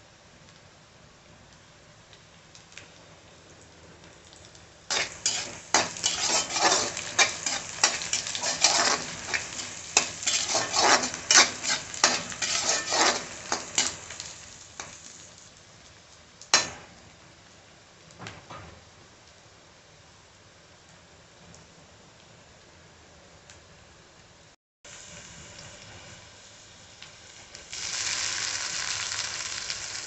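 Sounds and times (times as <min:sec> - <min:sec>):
oil sizzling: 0:01.5 - 0:17.6, 0:24.9 - 0:30.0
metal spatula scraping a pan: 0:04.9 - 0:15.0.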